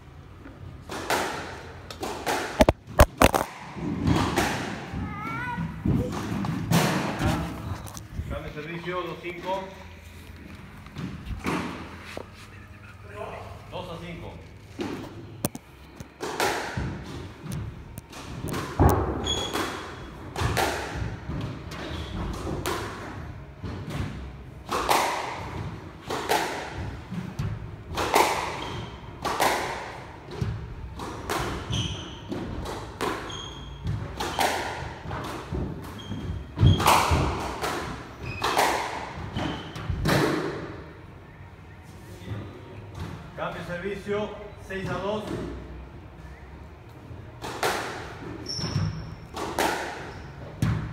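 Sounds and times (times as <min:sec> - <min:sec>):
squash ball struck by racket: 0:00.9 - 0:04.8, 0:16.2 - 0:17.6, 0:18.3 - 0:21.4, 0:23.8 - 0:40.7, 0:47.4 - 0:48.2, 0:48.8 - 0:50.9
shoes squeaking on wooden floor: 0:35.9 - 0:37.0, 0:48.3 - 0:49.2.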